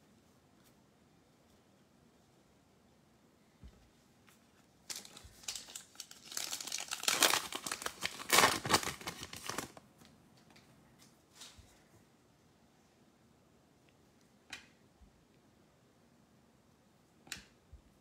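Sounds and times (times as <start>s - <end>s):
foil wrapper crinkling: 4.8s - 9.8s
foil wrapper tearing: 4.9s - 9.8s.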